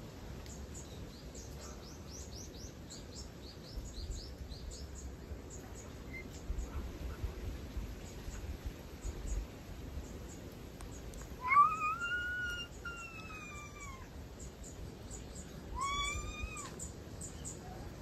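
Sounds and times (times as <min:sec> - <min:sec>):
cat meowing: 0:11.4 - 0:14.1, 0:15.7 - 0:16.8.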